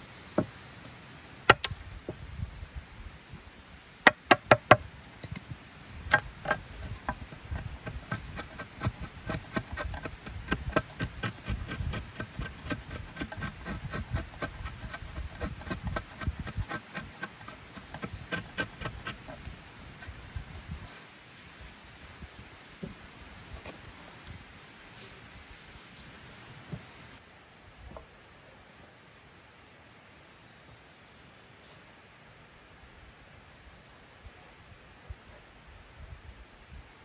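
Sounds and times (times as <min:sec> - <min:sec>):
knife shaving wood: 0:06.1 - 0:20.5.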